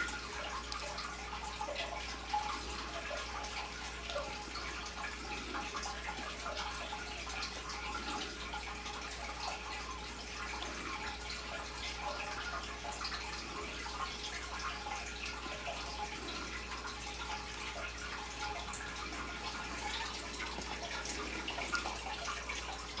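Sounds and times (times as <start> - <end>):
faint steady hum: 0.0 - 23.0
water trickling and dripping: 0.0 - 23.0.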